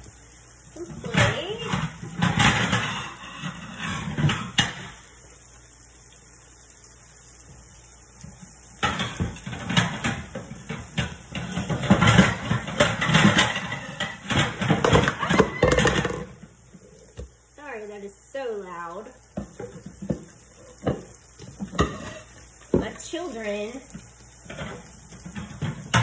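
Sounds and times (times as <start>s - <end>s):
dishes knocking and clinking: 0.9s - 5.0s, 8.8s - 16.5s, 19.4s - 22.9s, 24.5s - 26.0s.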